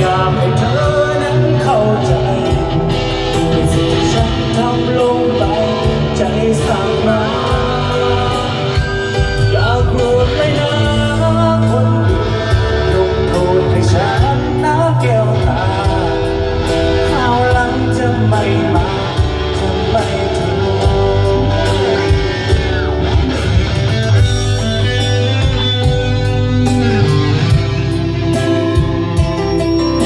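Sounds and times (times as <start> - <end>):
rock band music: 0.0 - 30.0.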